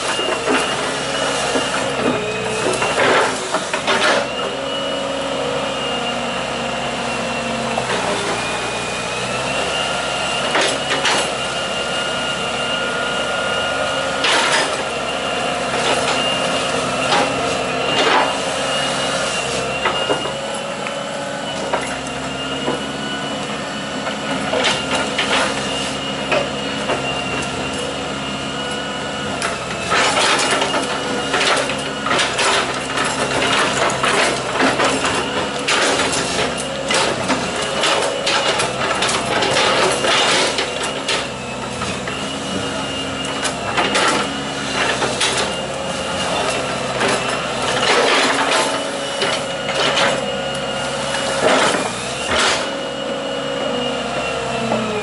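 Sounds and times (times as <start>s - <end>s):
bucket and tracks clanking: 0.0s - 4.6s, 10.4s - 11.5s, 14.1s - 28.0s, 29.4s - 52.9s
excavator engine with hydraulic whine: 0.0s - 55.0s.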